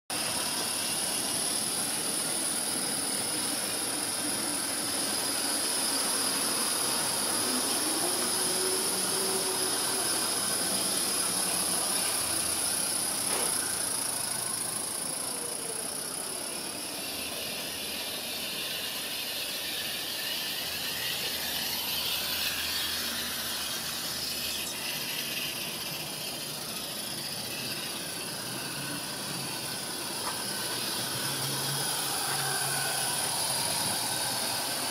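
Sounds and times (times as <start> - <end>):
steam locomotives hissing: 0.1 - 34.9.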